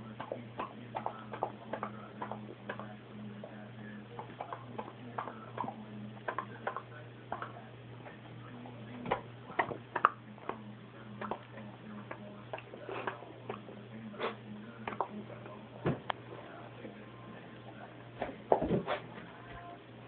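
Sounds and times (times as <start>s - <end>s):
steady low hum: 0.0s - 20.0s
puppy mouth smacking: 0.2s - 3.6s, 4.2s - 8.2s, 9.1s - 10.6s, 11.2s - 15.6s.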